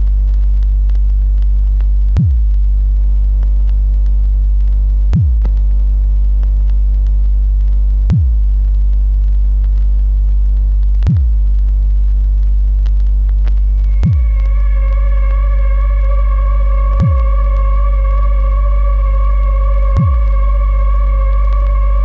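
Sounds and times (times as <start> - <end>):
low electronic drone: 0.0 - 22.0
deep booms dropping in pitch: 1.4 - 2.7, 5.0 - 5.8, 7.7 - 8.7, 10.9 - 11.8, 13.5 - 22.0
sustained synth chord: 13.7 - 22.0.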